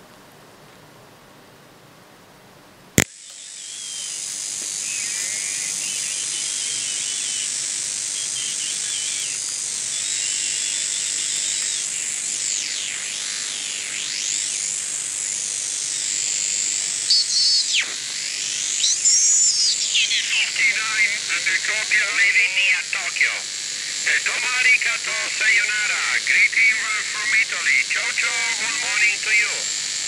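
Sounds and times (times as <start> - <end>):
radio hiss: 3.0 - 30.0
high steady whistle: 3.6 - 11.9, 17.0 - 23.0
swooping heterodyne whistles: 4.8 - 10.9
faint warbling radio signals: 17.1 - 29.8.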